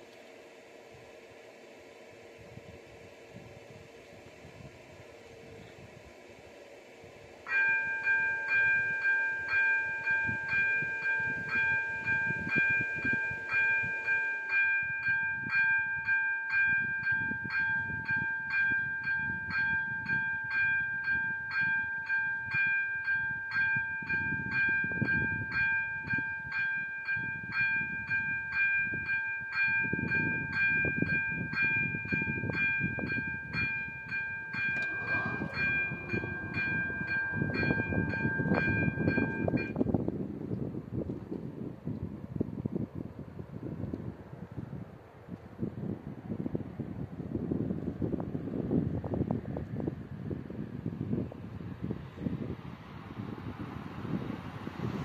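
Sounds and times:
train rumbling past: 0.0 - 40.2, 51.6 - 55.0
crossing warning bell ringing: 7.5 - 40.1.

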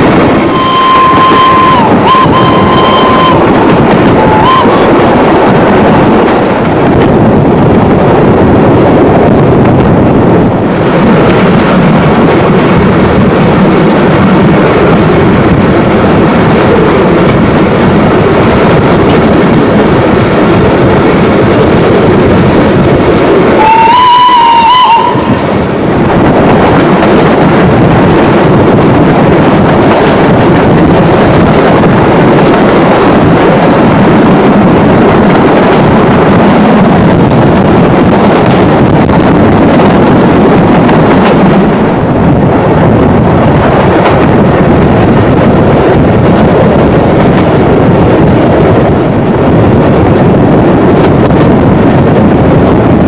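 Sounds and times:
train wheels rumbling and clattering: 0.0 - 53.0
steam locomotive whistle: 0.5 - 3.5, 4.2 - 4.9, 23.6 - 25.4.

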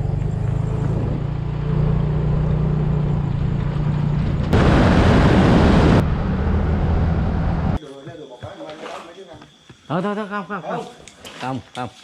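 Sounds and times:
wind noise: 3.8 - 7.8.

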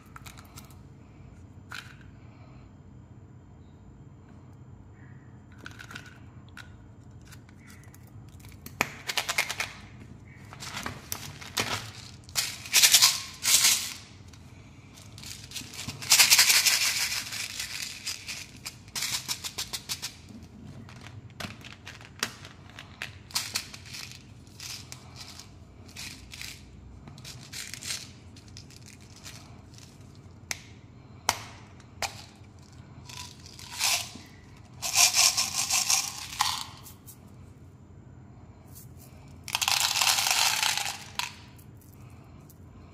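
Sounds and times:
hard candies rattling: 10.6 - 30.7, 32.0 - 37.2, 39.5 - 42.6.

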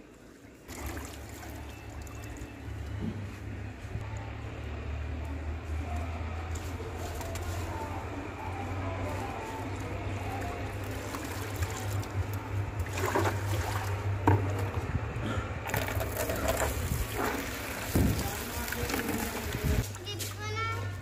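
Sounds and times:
water splashing in a plastic tub: 0.6 - 3.0, 10.0 - 14.8, 15.6 - 20.0.

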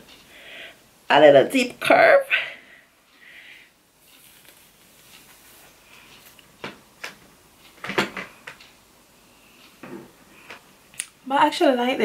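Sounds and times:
plastic clicks and knocks: 7.8 - 8.6.

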